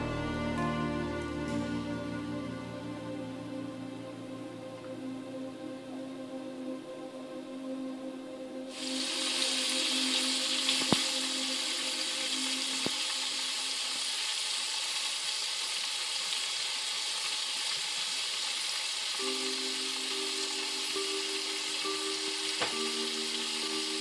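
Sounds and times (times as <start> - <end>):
fish sizzling in hot oil: 8.7 - 24.0.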